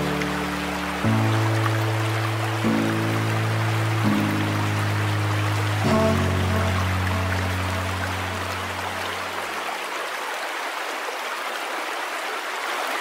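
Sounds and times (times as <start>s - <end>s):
held low musical chord: 0.0s - 9.5s
turbulent river rushing: 0.0s - 13.0s.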